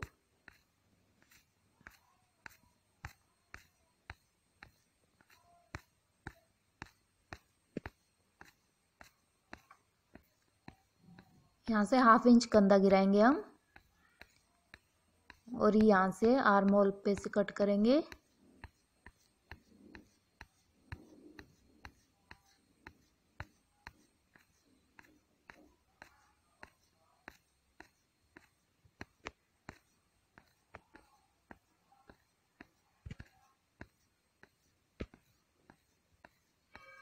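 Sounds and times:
scissors snipping cloth: 0.0 - 12.4.

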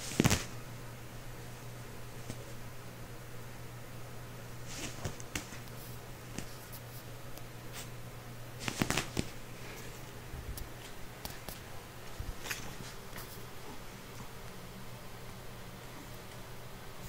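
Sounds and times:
steady low hum: 0.0 - 17.0
soft rustling: 4.6 - 8.0, 8.6 - 14.6.

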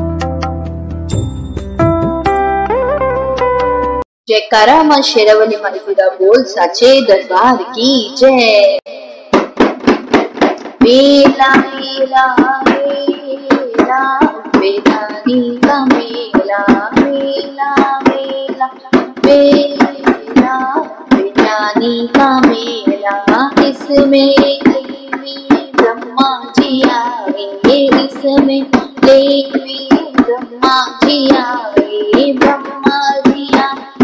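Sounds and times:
rhythmic hand claps: 9.3 - 34.0
person singing devotional song: 10.5 - 34.0.

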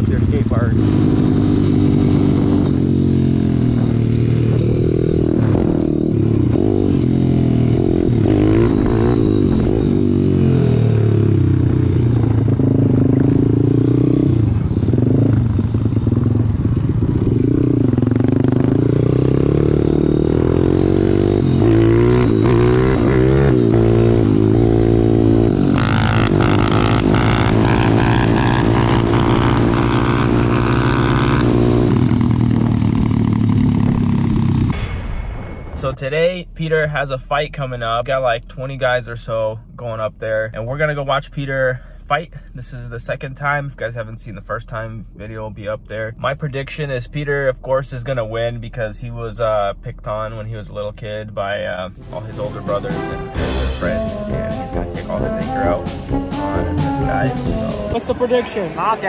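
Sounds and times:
motorbike engine revving: 0.0 - 34.8.

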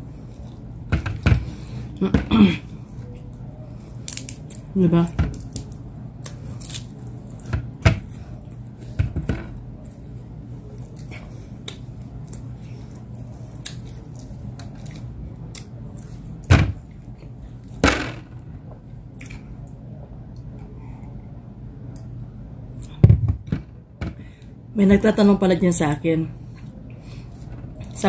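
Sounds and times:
steady low hum: 0.0 - 28.0
chewing and mouth sounds: 9.8 - 17.6.

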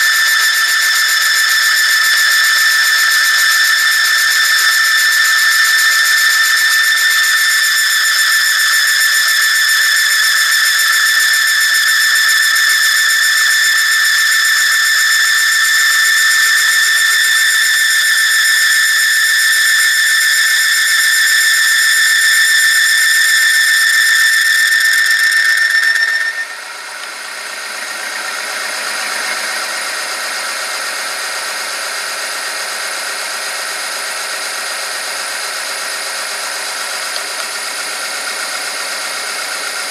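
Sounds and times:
machine high-pitched squeal: 0.0 - 39.9.

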